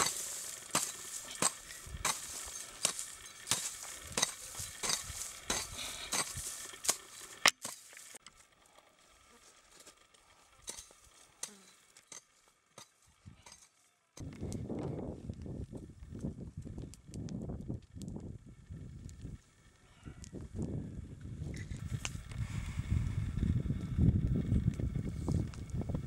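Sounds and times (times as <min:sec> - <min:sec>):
shovel scraping sandy soil: 0:00.0 - 0:08.2, 0:09.2 - 0:13.8.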